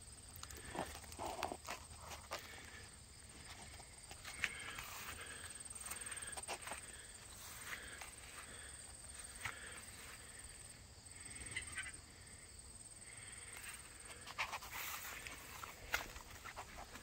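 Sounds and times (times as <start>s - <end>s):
breathy sounds: 0.3s - 17.0s
soft rustles: 13.8s - 17.0s.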